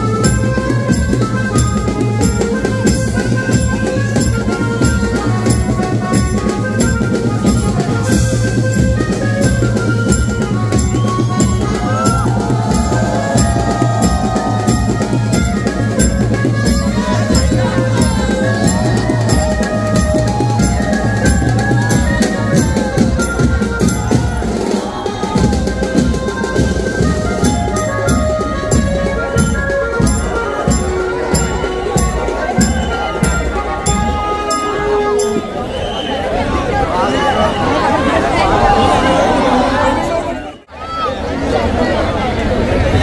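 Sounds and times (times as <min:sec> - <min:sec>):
drums and cymbals: 0:00.0 - 0:36.2
banjo party band music: 0:00.0 - 0:36.5.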